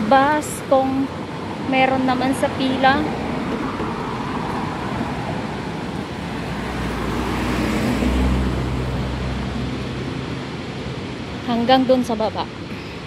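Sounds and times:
street noise: 0.0s - 13.0s
car engine passing by: 2.4s - 11.4s.

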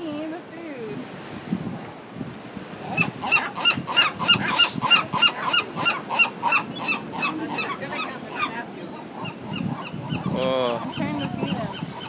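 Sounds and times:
gull honking calls: 2.9s - 12.0s.

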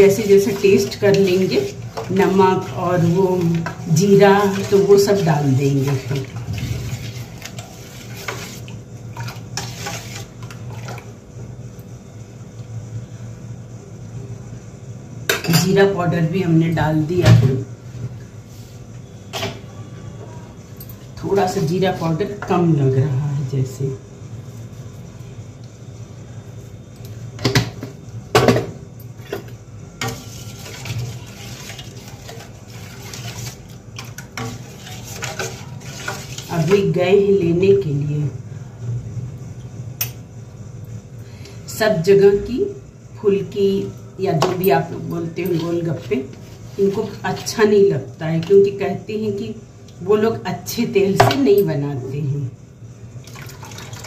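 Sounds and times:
spoon clinking and scraping metal pot: 0.0s - 8.6s, 30.0s - 37.0s.

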